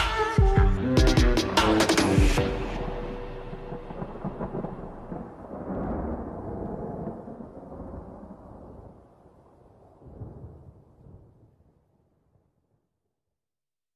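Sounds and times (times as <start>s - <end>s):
noisy reverb wash: 0.0s - 6.5s
slowed reverb-heavy song: 0.0s - 7.1s.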